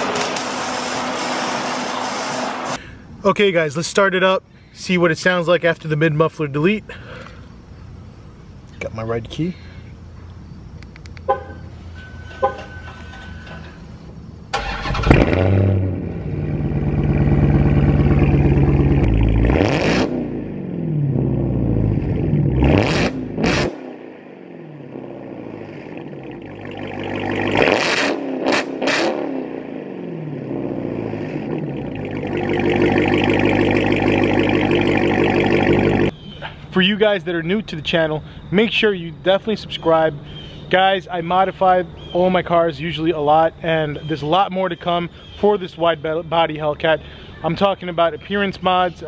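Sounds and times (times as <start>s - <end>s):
car engine revving and idling: 14.6s - 36.1s.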